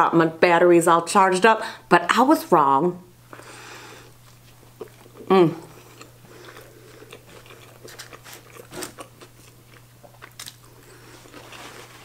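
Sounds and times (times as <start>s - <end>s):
person chewing food: 4.0s - 12.0s.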